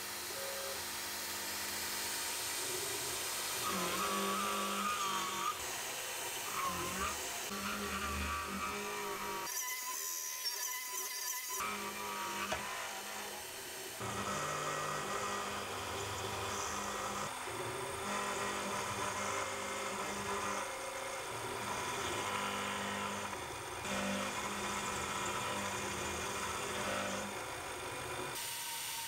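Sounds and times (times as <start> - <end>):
milling spindle whine: 0.2 - 28.4.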